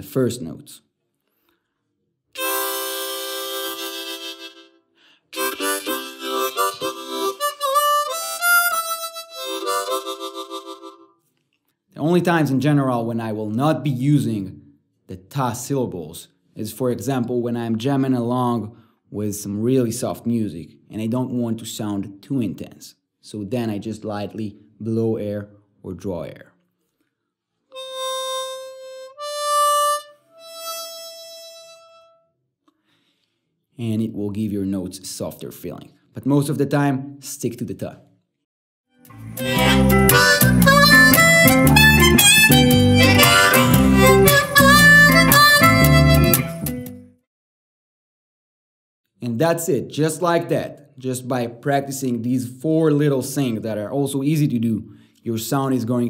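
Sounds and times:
harmonica playing: 2.4 - 11.2, 27.7 - 32.3, 39.0 - 47.0.

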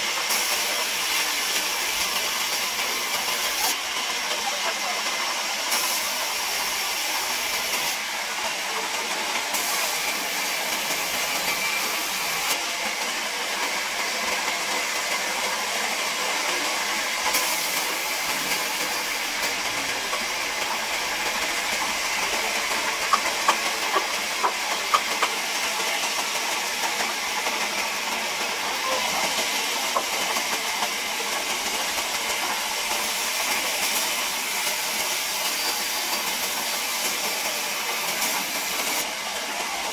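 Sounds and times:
band saw cutting wood: 9.5 - 13.0, 16.4 - 37.4.

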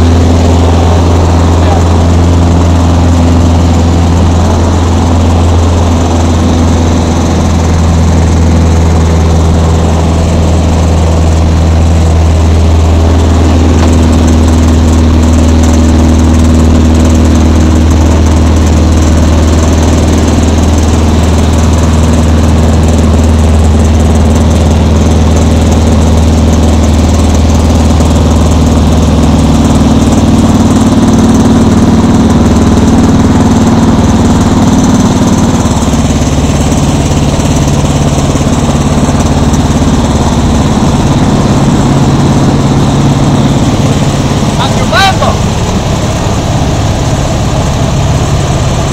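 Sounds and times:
aircraft piston engine drone: 0.0 - 48.9.

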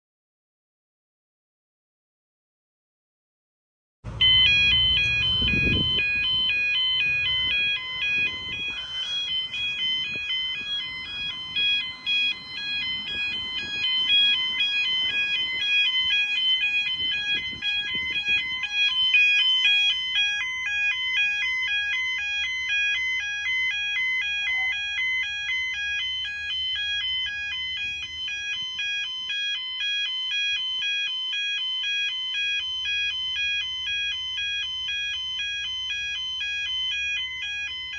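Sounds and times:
road traffic passing: 4.0 - 29.4
level crossing alarm: 4.0 - 37.9.

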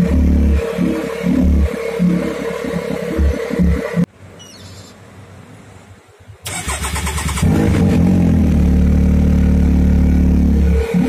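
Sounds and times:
engine starter cranking: 6.5 - 8.0.

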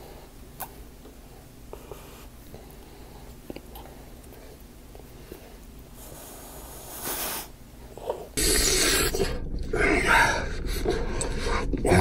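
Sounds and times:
man chewing food: 0.4 - 6.9.

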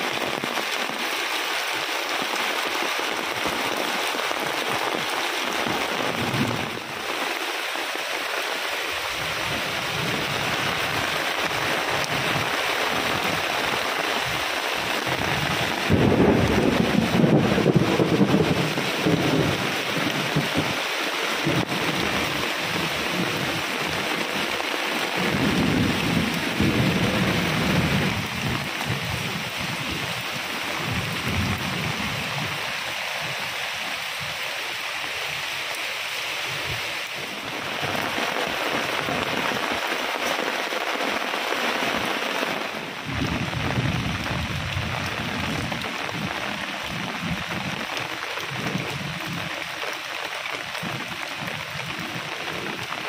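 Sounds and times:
heavy rain pouring: 0.0 - 53.0
rolling thunder: 15.0 - 20.7, 25.2 - 30.0, 43.0 - 47.8.

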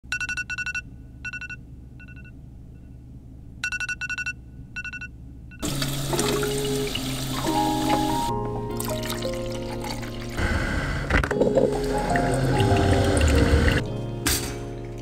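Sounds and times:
music: 5.6 - 15.0.

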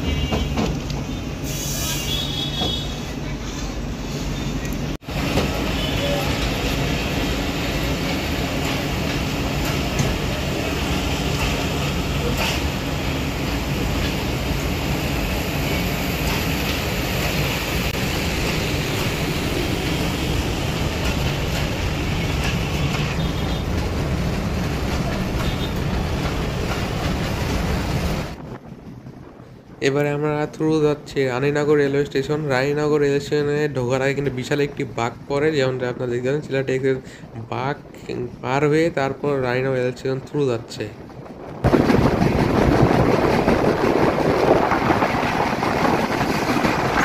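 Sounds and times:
train wheels rumbling on track: 0.0 - 47.0
high wheel squeal: 1.4 - 3.2.

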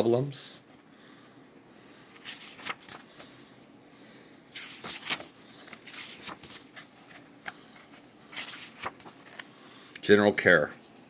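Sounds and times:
book pages turning: 2.1 - 3.3, 4.5 - 9.6.

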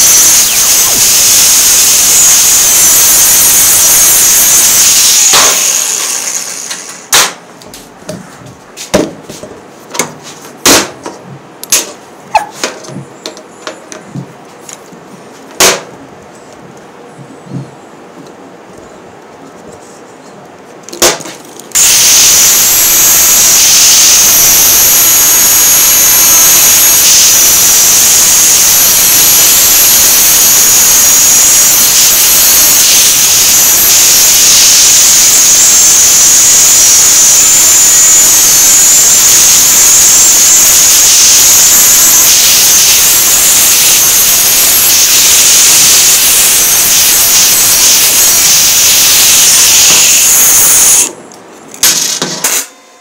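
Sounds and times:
angle grinder grinding metal: 0.0 - 7.2, 21.7 - 51.1.

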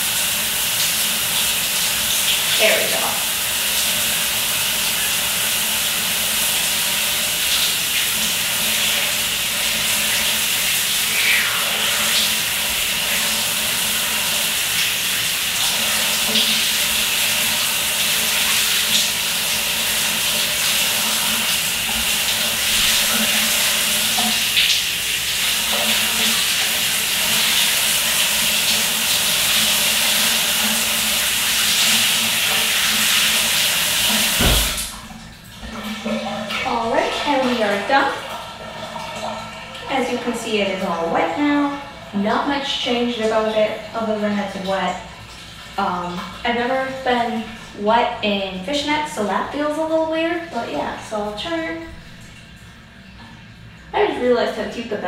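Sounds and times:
shower water spray hissing: 0.0 - 35.0.

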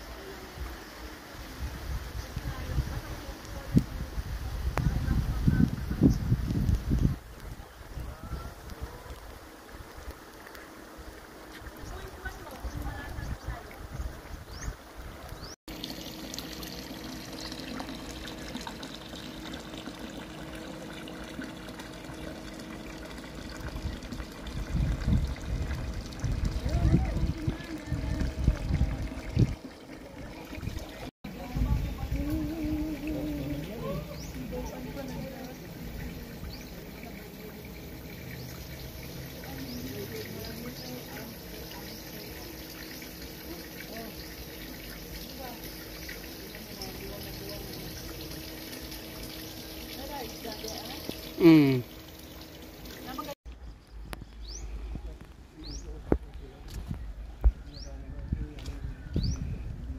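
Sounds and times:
water pouring into pond: 0.0 - 53.4
light rain on water: 6.5 - 13.7.

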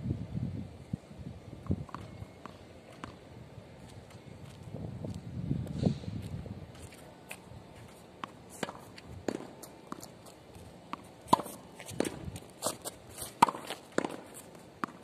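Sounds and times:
tennis ball bouncing: 1.7 - 3.2, 8.1 - 15.0
footsteps on court: 3.8 - 15.0
racket hitting ball: 8.2 - 15.0.

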